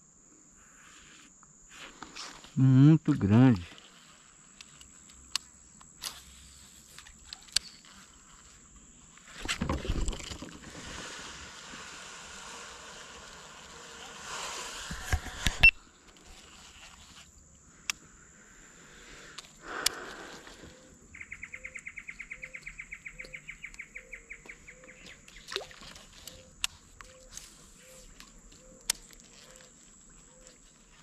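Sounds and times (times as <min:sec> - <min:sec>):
faint high insect buzz: 0:00.0 - 0:31.0
rustling and water noise: 0:03.2 - 0:17.6, 0:22.0 - 0:31.0.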